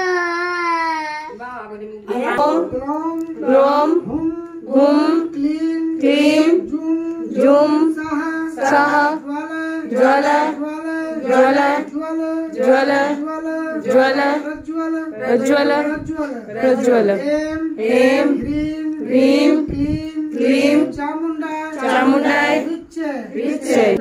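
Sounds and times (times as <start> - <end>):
devotional chanting: 2.0 - 24.0.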